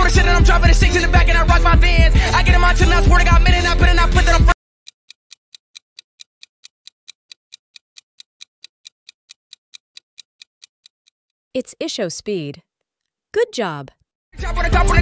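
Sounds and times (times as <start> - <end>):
timer ticking: 5.1 - 11.2.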